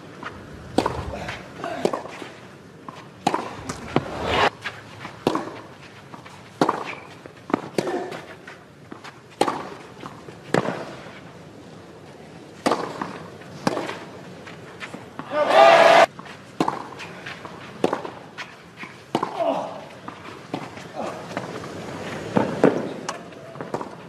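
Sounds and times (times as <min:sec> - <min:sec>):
tennis racket hitting ball: 0:00.7 - 0:02.2, 0:02.9 - 0:04.2, 0:05.2 - 0:05.7, 0:06.6 - 0:08.2, 0:09.4 - 0:09.8, 0:12.6 - 0:14.0.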